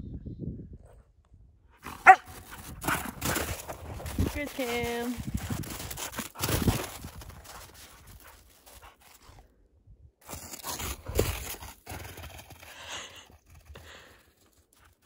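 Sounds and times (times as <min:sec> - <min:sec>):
footsteps crunching through snow: 0:01.9 - 0:09.4.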